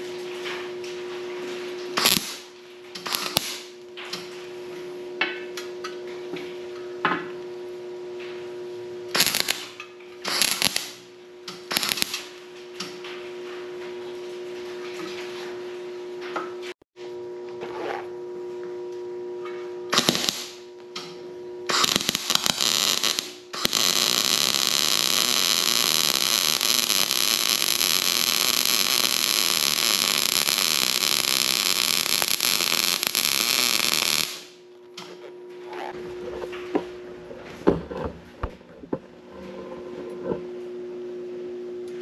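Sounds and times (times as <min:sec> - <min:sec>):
steady welder hum: 0:01.5 - 0:05.9, 0:07.2 - 0:13.6, 0:17.0 - 0:42.0
welding arc crackling: 0:02.0 - 0:03.8, 0:09.1 - 0:12.4, 0:19.9 - 0:20.7, 0:21.7 - 0:34.6.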